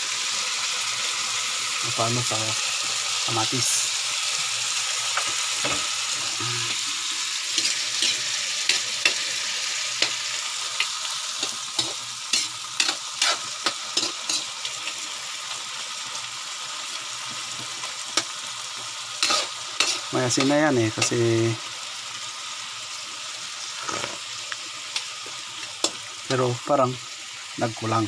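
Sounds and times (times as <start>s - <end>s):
meat sizzling in a wok: 0.0s - 28.0s
metal ladle scraping a pan: 7.6s - 9.2s, 11.8s - 14.5s, 19.2s - 20.1s.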